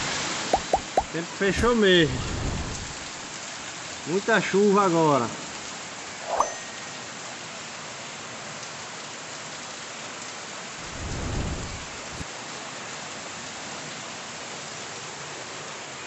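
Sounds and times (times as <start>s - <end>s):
heavy rain falling: 0.0s - 16.0s
low rumble of thunder: 2.1s - 3.2s, 10.8s - 12.2s.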